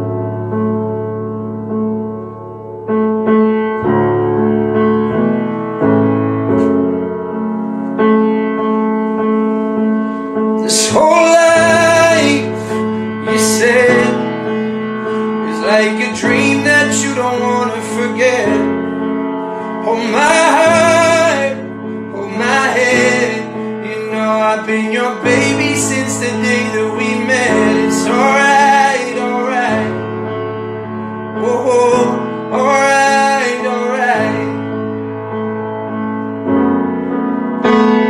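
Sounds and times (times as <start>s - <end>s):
grand piano playing chords: 0.0s - 38.0s
man singing: 10.6s - 18.8s, 19.8s - 30.2s, 31.4s - 34.8s.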